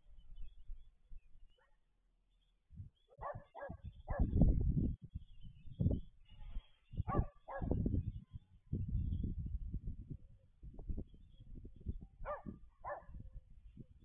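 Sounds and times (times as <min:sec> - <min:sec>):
dog barking: 0:03.2 - 0:04.3, 0:07.1 - 0:07.8, 0:12.2 - 0:13.2.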